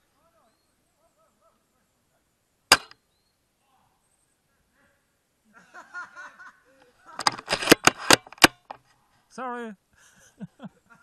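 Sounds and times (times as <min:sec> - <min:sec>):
airsoft rifle shot: 0:02.7 - 0:03.0.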